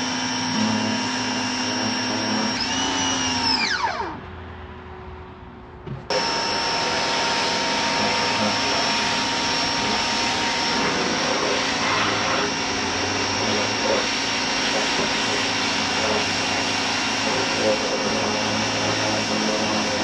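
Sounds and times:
vacuum cleaner running: 0:00.0 - 0:04.2, 0:06.1 - 0:20.0.

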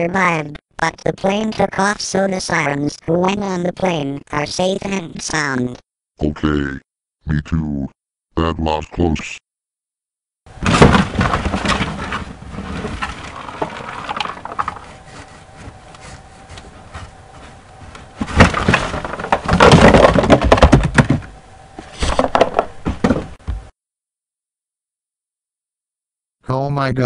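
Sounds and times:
clattering crashes of wreckage: 0:10.5 - 0:15.2, 0:18.0 - 0:21.3
loud crash: 0:10.6 - 0:14.6.

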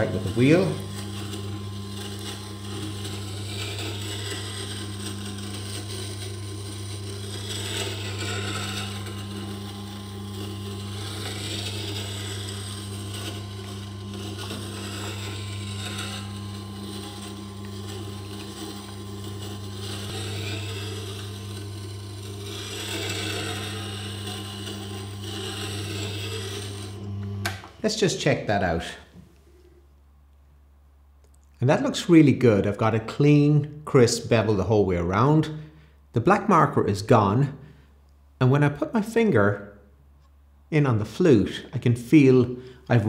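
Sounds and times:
grinder motor hum: 0:00.0 - 0:29.4, 0:40.8 - 0:43.0.

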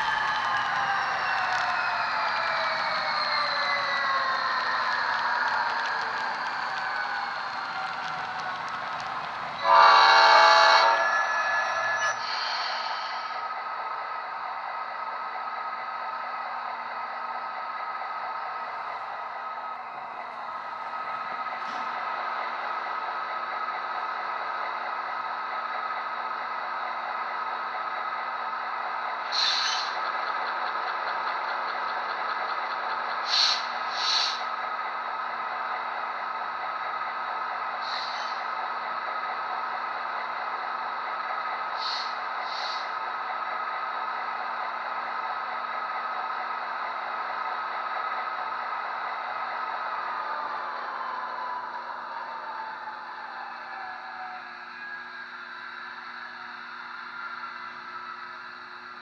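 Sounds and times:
model train diesel idle: 0:00.0 - 0:11.0, 0:11.8 - 0:59.0
short air hisses: 0:29.3 - 0:29.9, 0:33.3 - 0:34.4, 0:37.8 - 0:38.4, 0:41.8 - 0:42.9.

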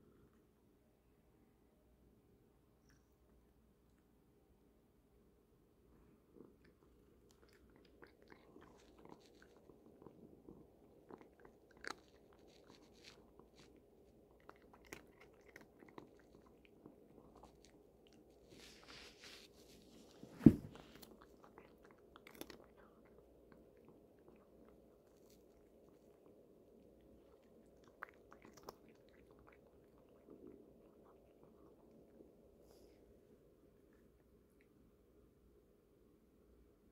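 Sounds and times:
cat crunching treats: 0:06.4 - 0:20.2, 0:20.8 - 0:32.4
sharp thump: 0:20.3 - 0:20.8.

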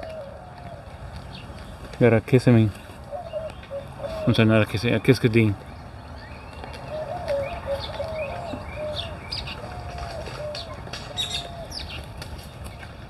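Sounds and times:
dove cooing: 0:00.0 - 0:01.7, 0:02.5 - 0:05.4, 0:06.5 - 0:13.0
bird chirps: 0:03.1 - 0:12.9.

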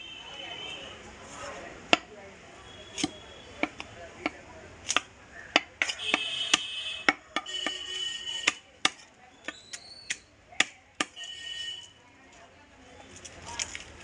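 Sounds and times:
knife chopping on wooden block: 0:03.0 - 0:11.2.

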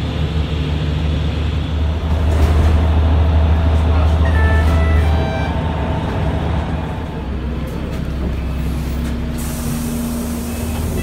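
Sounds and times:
bus engine running: 0:00.0 - 0:11.0
pneumatic air hiss: 0:09.3 - 0:11.0.

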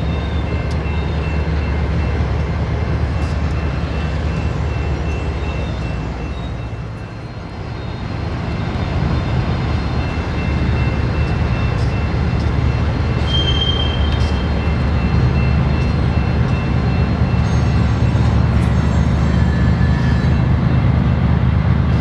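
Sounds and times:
freight train rumbling on rails: 0:00.0 - 0:22.0
high wheel squeals: 0:13.2 - 0:16.3.

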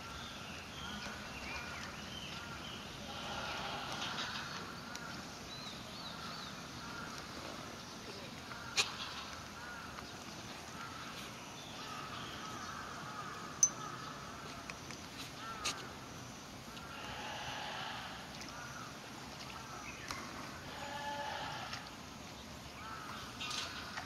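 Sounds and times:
distant birds calling: 0:10.7 - 0:14.7, 0:15.3 - 0:16.1.

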